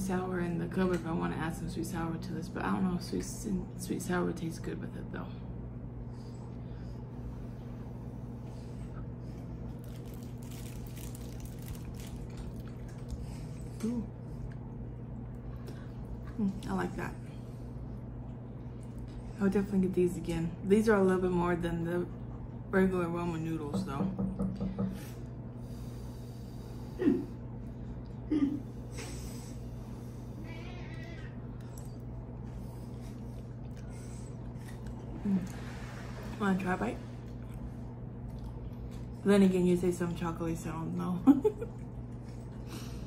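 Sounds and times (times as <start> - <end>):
low electrical hum: 0.0 - 43.0
person chewing noodles: 9.4 - 15.3, 31.5 - 35.5, 37.2 - 39.2.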